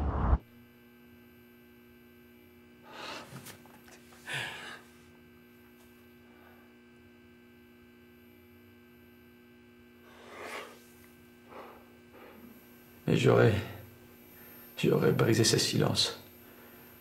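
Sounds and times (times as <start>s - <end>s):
steady low hum: 0.0s - 17.0s
person breathing: 2.8s - 3.4s, 4.2s - 5.0s, 10.0s - 10.8s, 11.4s - 12.6s.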